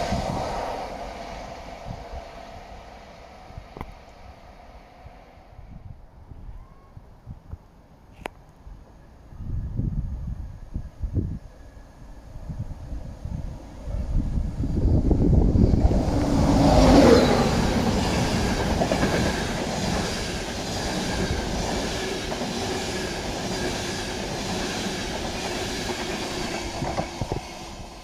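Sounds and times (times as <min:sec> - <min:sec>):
electric locomotive passing: 0:00.0 - 0:06.3, 0:08.6 - 0:28.0
train wheels clattering on track: 0:15.6 - 0:28.0.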